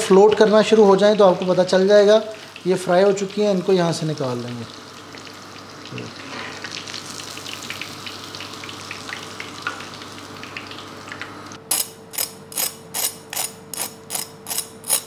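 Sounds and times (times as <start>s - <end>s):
hot oil sizzling: 0.0s - 13.1s
knife scraping crisp crust: 11.7s - 15.0s.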